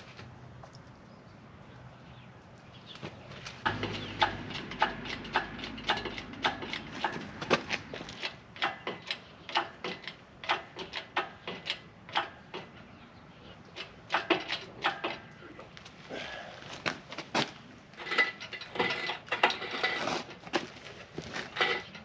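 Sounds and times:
engine hoist metallic clicks: 0:03.6 - 0:13.0, 0:13.6 - 0:15.4, 0:18.0 - 0:20.4, 0:21.5 - 0:22.0.

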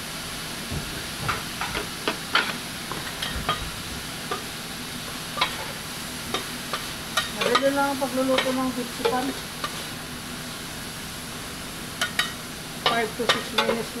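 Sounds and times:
beef sizzling on griddle: 0:00.0 - 0:14.0
spatulas clicking and scraping metal: 0:05.4 - 0:09.8.

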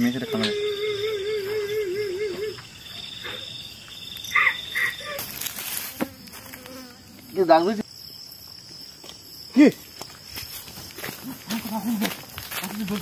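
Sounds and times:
insect trilling: 0:00.0 - 0:13.0
high trembling wail: 0:00.2 - 0:02.8.

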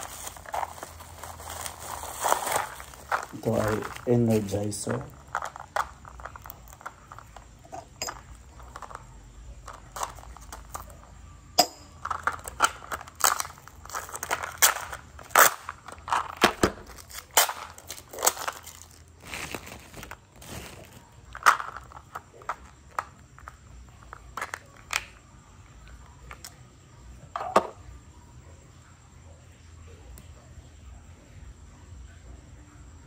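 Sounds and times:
plastic packaging crinkling: 0:00.0 - 0:11.1, 0:12.0 - 0:25.2.

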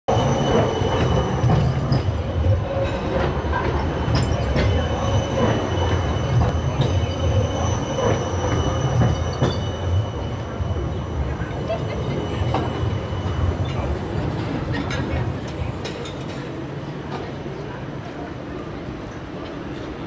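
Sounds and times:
high-pitched wheel squeal: 0:00.1 - 0:14.2
tram rumbling past: 0:00.1 - 0:20.0.

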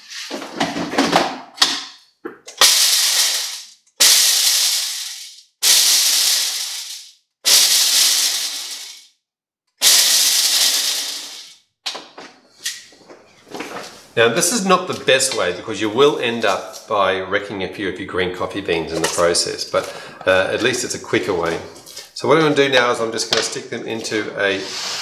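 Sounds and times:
blender whirring in bursts: 0:09.8 - 0:11.5, 0:24.6 - 0:25.0.

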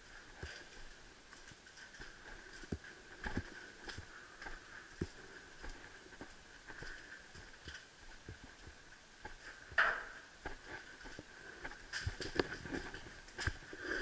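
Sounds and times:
footstep scrape: 0:00.0 - 0:14.0
footsteps on littered floor: 0:00.0 - 0:14.0.

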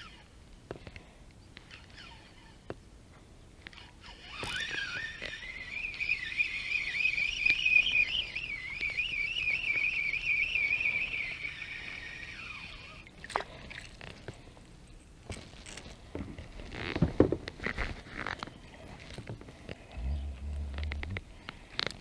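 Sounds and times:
fishing reel gears whining: 0:03.7 - 0:13.1.

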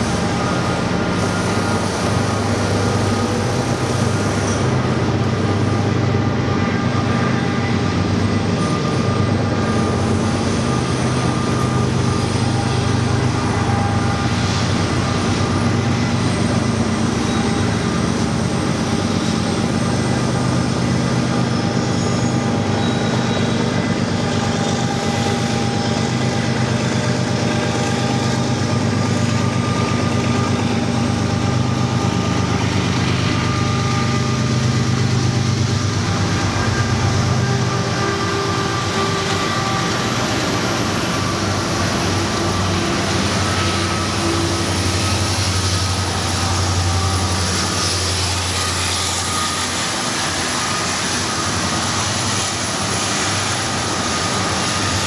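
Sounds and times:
diesel locomotive engines droning: 0:00.0 - 0:55.0.

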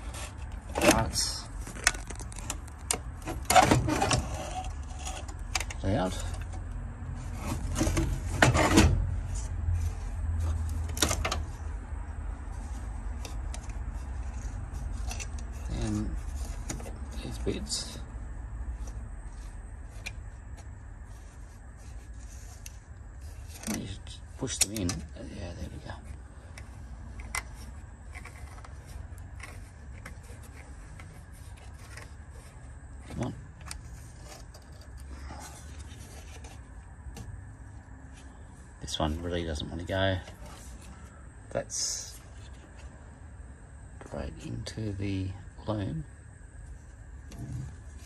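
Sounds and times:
bulb holders clicking and scraping: 0:00.0 - 0:11.8, 0:12.4 - 0:18.0, 0:18.8 - 0:37.3
steady low hum: 0:00.0 - 0:48.0.

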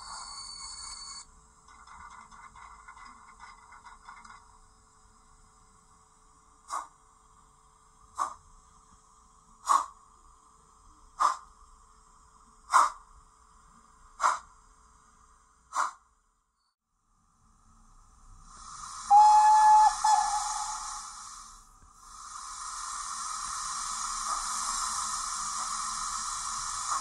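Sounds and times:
model locomotive chuffing: 0:00.0 - 0:08.5, 0:18.4 - 0:27.0
faint steady hum: 0:00.0 - 0:27.0.

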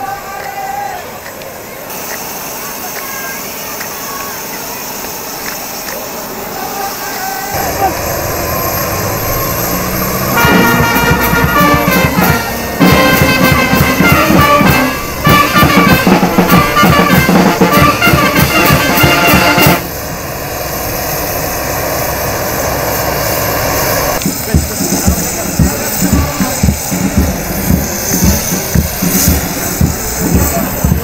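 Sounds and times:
steady background noise: 0:00.0 - 0:31.0
brass band music with drums: 0:10.0 - 0:19.9, 0:24.2 - 0:31.0.

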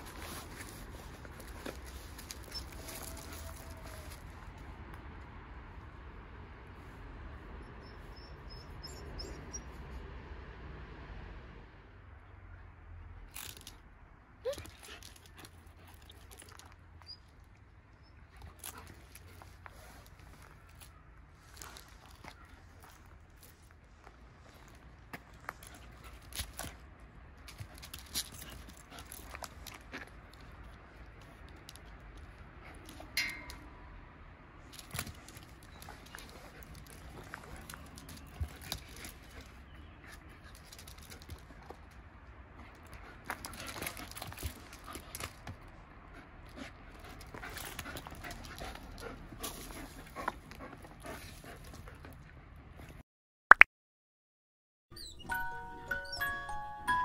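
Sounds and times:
claws clicking on concrete: 0:13.3 - 0:13.8, 0:14.4 - 0:17.1, 0:25.1 - 0:33.7, 0:34.6 - 0:45.8, 0:46.4 - 0:52.3
dogs scuffling: 0:34.7 - 0:42.0
dogs panting: 0:42.6 - 0:52.4.

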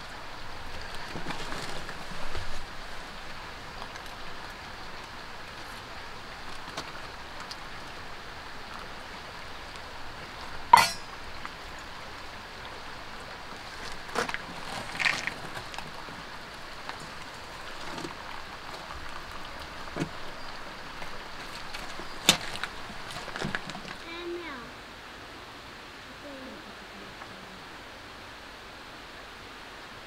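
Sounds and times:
rain falling: 0:00.0 - 0:30.0
sharp clink: 0:10.8 - 0:11.1.

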